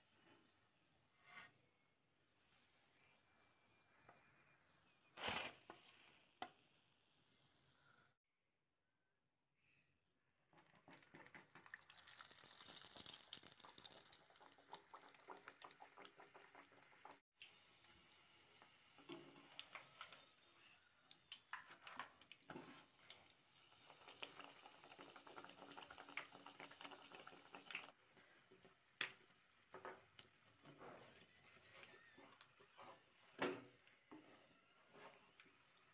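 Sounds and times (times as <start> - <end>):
hot oil sizzling in pan: 11.8 - 20.2, 23.4 - 28.0.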